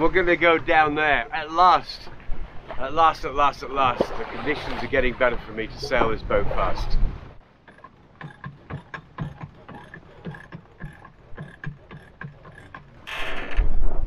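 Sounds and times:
winch pawls clicking: 7.6s - 13.2s.

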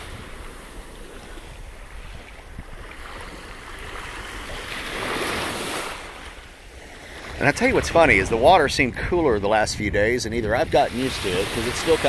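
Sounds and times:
wind rumble on microphone: 0.0s - 6.1s, 6.7s - 12.0s
small waves washing on sand: 0.0s - 8.7s, 10.6s - 12.0s.

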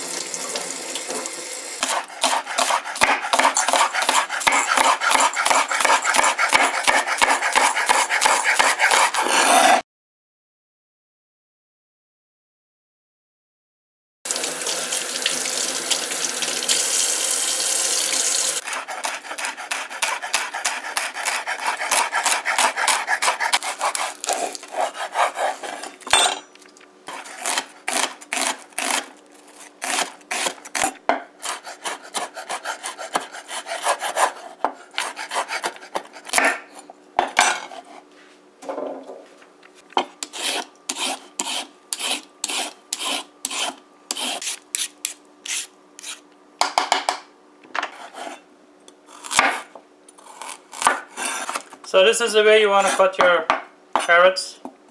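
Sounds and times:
knife chopping on wooden board: 1.8s - 9.8s, 18.7s - 25.9s, 29.8s - 37.7s, 49.2s - 51.6s
peeler scraping a carrot: 1.8s - 9.8s, 18.6s - 26.0s, 27.1s - 36.9s, 40.2s - 46.2s, 50.2s - 51.7s.

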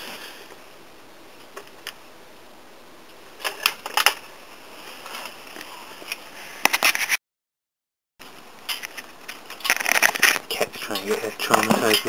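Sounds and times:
camera handling clicks and rustles: 8.7s - 10.5s.

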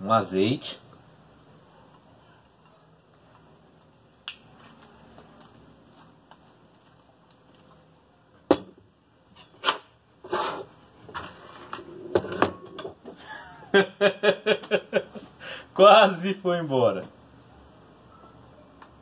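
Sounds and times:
handling noise on a workbench: 8.5s - 13.2s.

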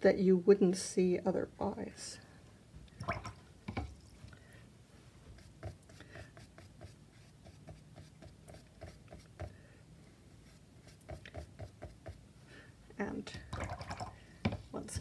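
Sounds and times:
brush dabbing on paper: 5.0s - 9.6s, 10.3s - 12.3s.

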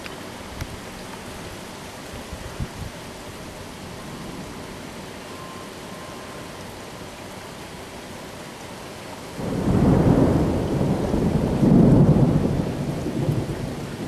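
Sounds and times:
steady rain: 0.0s - 14.0s
thunder rumbling: 9.4s - 14.0s.

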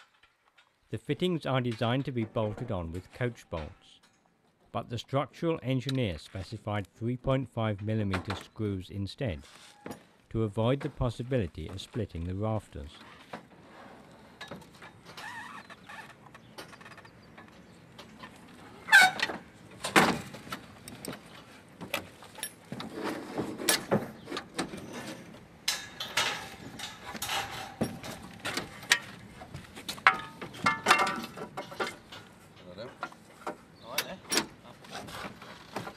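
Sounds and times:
metal knocks and scrapes: 22.6s - 33.7s.

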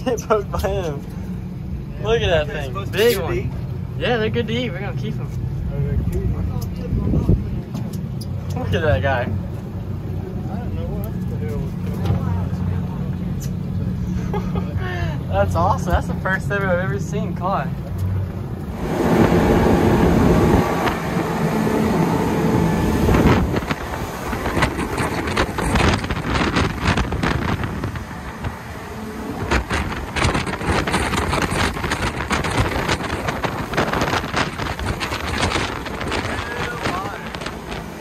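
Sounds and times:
outboard motors running: 0.0s - 38.0s
wind buffeting microphone: 5.5s - 8.4s, 18.1s - 38.0s.

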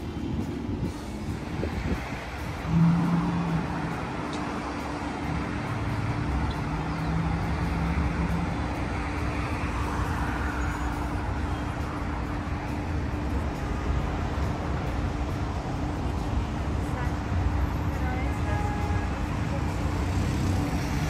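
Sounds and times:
cars driving past: 0.0s - 21.0s.

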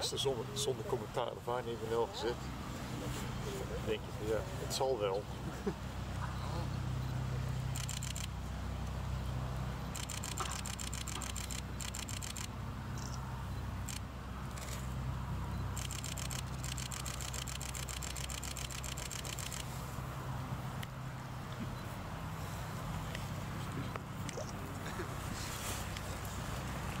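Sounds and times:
camera shutter clicks: 7.7s - 8.3s, 10.0s - 13.2s, 15.8s - 19.7s.

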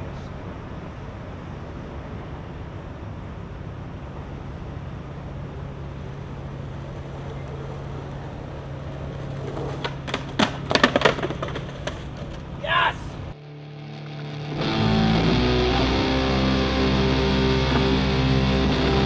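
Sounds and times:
low city hum: 0.0s - 19.0s
skateboard wheels rolling on pavement: 0.1s - 13.4s
skateboard clacks: 6.6s - 12.6s.

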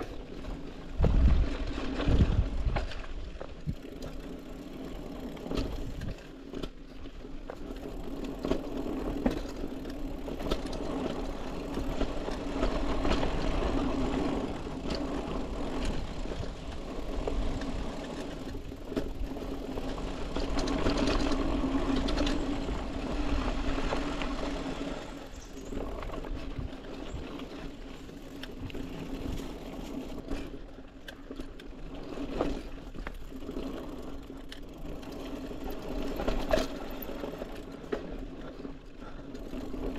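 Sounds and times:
bike knocks and rattles: 0.0s - 24.3s, 25.3s - 38.2s
bike tyres and drivetrain whir: 0.0s - 39.9s.

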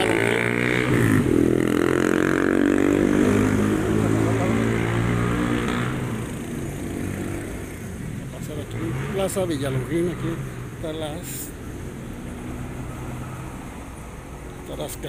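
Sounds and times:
vehicle engine accelerating past: 0.0s - 7.6s.

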